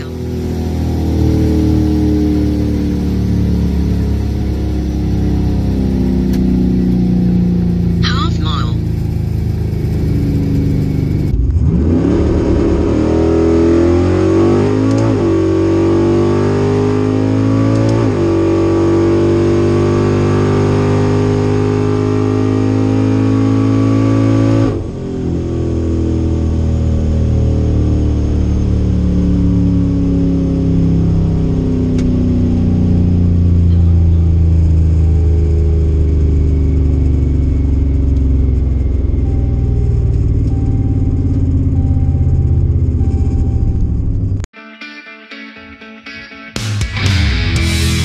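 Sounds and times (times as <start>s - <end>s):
engine revving at full throttle: 0.0s - 8.2s, 8.8s - 38.5s.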